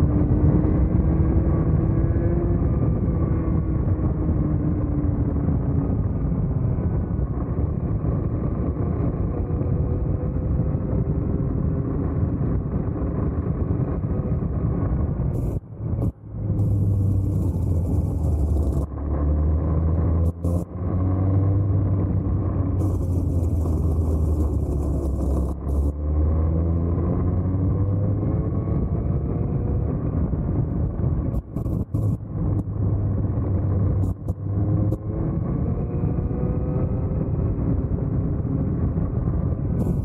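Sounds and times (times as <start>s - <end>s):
kart engine running: 16.5s - 27.3s.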